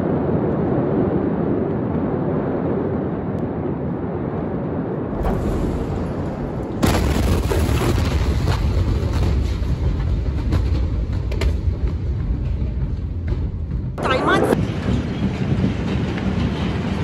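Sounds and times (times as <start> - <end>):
deep rumble: 0.0 - 17.0
steady rumbling: 0.0 - 17.0
explosion boom: 5.0 - 15.2.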